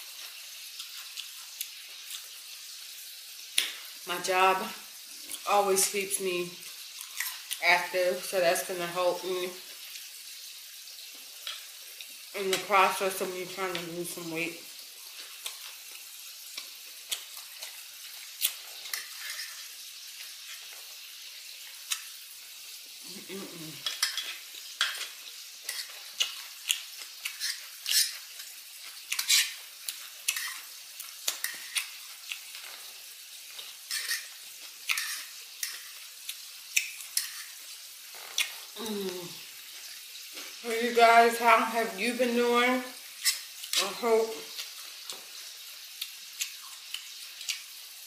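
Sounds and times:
chewing crisp salad: 0.2s - 2.8s, 15.1s - 22.2s, 23.8s - 39.0s, 43.2s - 47.8s
person humming low: 38.8s - 39.4s.

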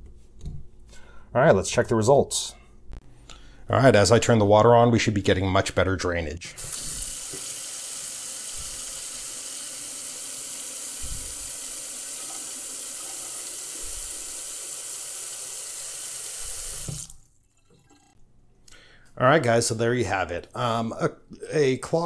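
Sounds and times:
faucet water running into sink drain: 6.6s - 18.2s.

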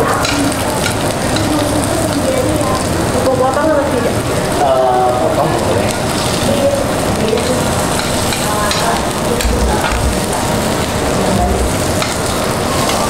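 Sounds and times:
meat sizzling on a grill: 0.0s - 13.0s
metal tongs clicking on plate: 0.2s - 1.7s, 7.2s - 10.0s, 12.0s - 13.0s.

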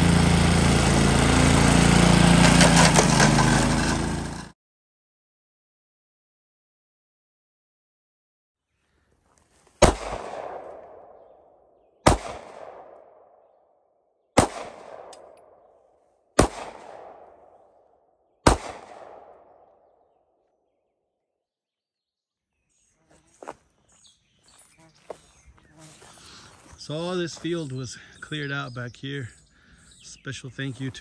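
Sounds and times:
sharp loud bangs with echo: 9.8s - 11.1s, 12.0s - 12.9s, 14.4s - 15.1s, 16.4s - 17.4s, 18.4s - 19.4s.

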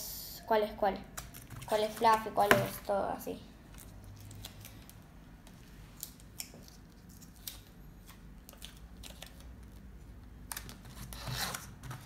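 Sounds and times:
low room hum: 0.0s - 12.0s
sticker backing peeling and crinkling: 5.9s - 12.0s.

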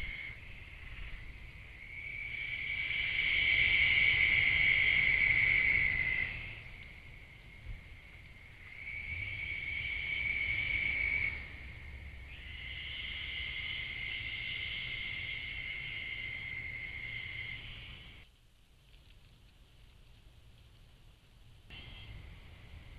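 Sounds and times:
insect trilling: 0.0s - 18.2s.

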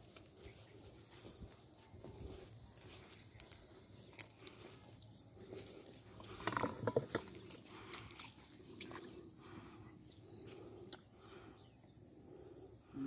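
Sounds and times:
footsteps on wet grass: 0.0s - 10.8s
splashes and knocks in muddy water: 6.4s - 9.2s.

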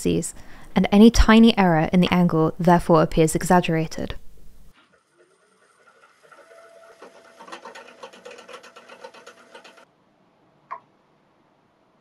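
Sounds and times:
steady machine tone: 5.1s - 9.8s.

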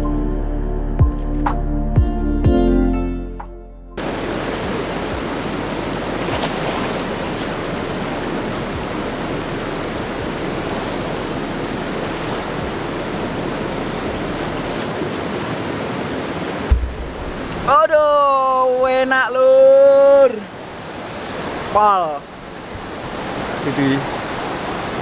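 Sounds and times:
river flowing over stones: 4.0s - 25.0s
low thump: 16.7s - 17.7s.

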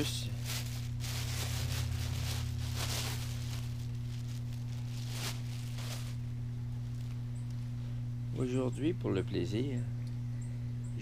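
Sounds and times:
handling and rustling noises: 0.0s - 7.7s
steady low hum: 0.0s - 11.0s.

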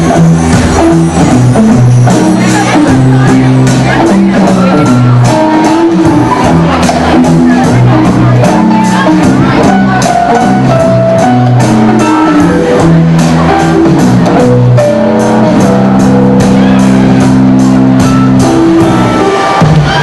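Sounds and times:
drum kit beat: 0.0s - 20.0s
electric guitar chords: 0.0s - 20.0s.

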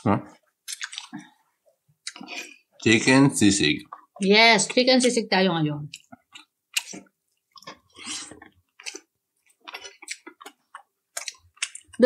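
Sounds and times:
wet chewing: 0.6s - 1.4s, 2.0s - 2.7s, 5.8s - 12.0s.

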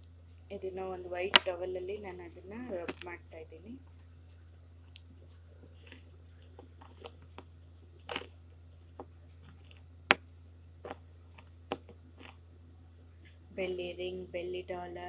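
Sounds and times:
low steady hum: 0.0s - 15.0s
cloth rustling: 4.0s - 12.5s.

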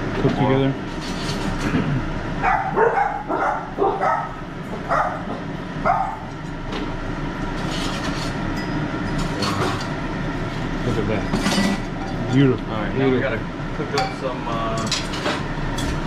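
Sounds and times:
low background hum: 0.0s - 16.0s
sharp bark-like calls: 2.4s - 5.2s.

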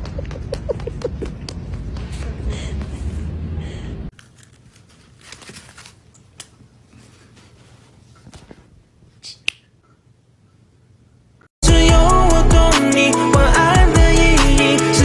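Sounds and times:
rustling: 4.2s - 8.8s.

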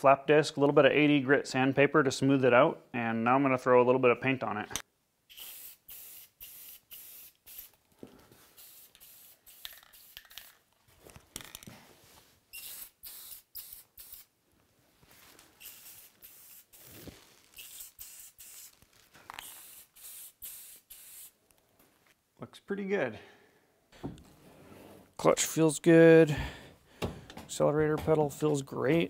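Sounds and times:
spray paint can hissing: 5.3s - 7.8s, 8.5s - 10.7s, 12.5s - 14.3s, 15.6s - 17.0s, 17.6s - 21.4s.

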